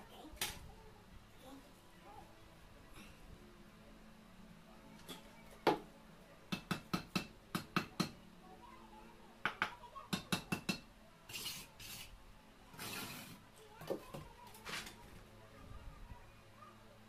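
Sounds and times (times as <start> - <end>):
taps on concrete blocks: 6.5 - 8.2, 9.4 - 10.9
short scrape: 11.3 - 12.1, 12.8 - 13.4.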